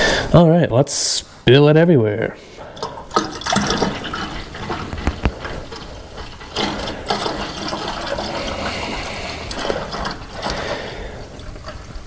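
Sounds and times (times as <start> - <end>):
liquid pouring from a jug: 2.7 - 12.0.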